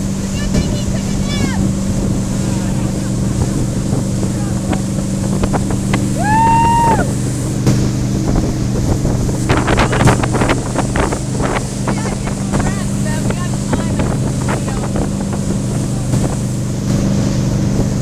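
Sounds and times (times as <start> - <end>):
motorboat engine running: 0.0 - 18.0
water splashes and slaps: 0.0 - 18.0
wind buffeting microphone: 0.0 - 18.0.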